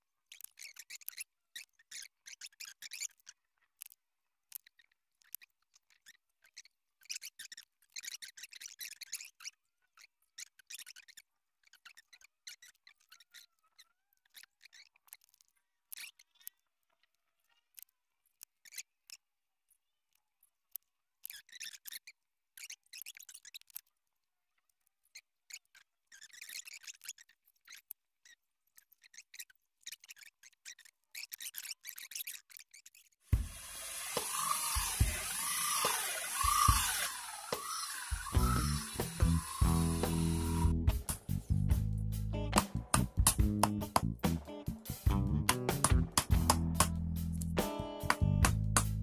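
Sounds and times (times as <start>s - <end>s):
small clicks: 0.3s - 19.3s, 33.8s - 41.3s
divider point marking wood: 33.4s - 40.7s.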